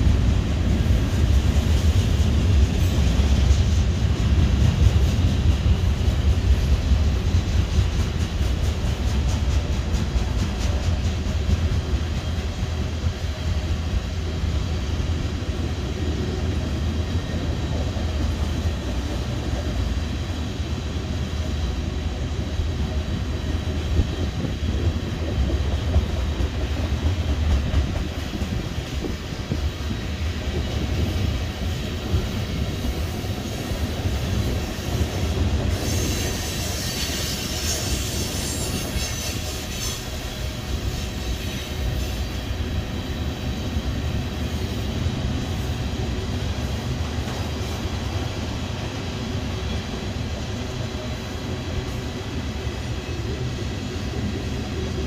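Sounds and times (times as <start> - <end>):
train wheels rumbling on rails: 0.0 - 55.0
high wheel squeal: 35.7 - 42.3.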